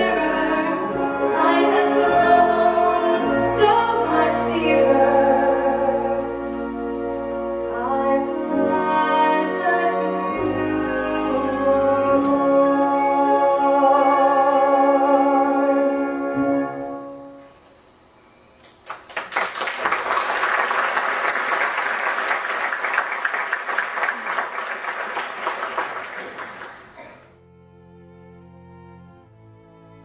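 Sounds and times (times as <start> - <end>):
soft violin and cello music: 0.0 - 17.4, 27.4 - 30.0
audience applauding: 18.6 - 27.2.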